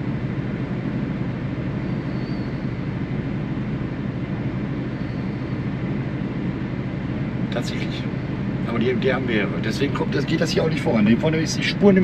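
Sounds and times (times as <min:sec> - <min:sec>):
truck engine drone from cab: 0:00.0 - 0:12.0.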